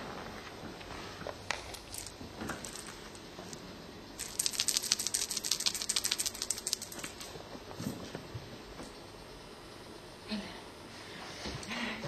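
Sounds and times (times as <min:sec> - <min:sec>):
cat toy rattling and jingling: 0:04.2 - 0:07.3.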